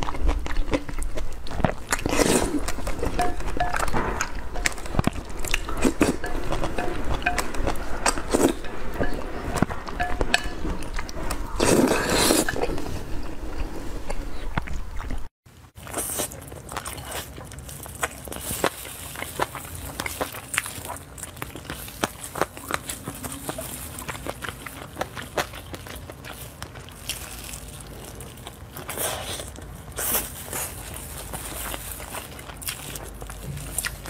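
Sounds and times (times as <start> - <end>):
wet chewing: 0.0 - 34.0
slurping noodles: 1.7 - 3.2, 11.2 - 14.4.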